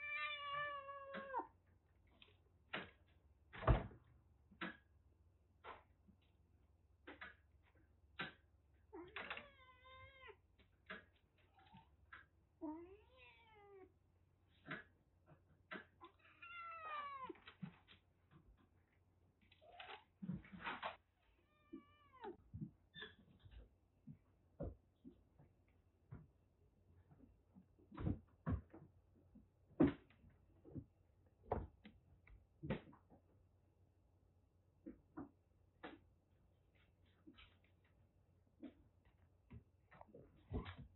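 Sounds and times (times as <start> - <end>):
cat meowing: 0.0 - 1.5, 9.0 - 10.4, 12.6 - 13.9, 16.0 - 17.4, 21.4 - 22.4.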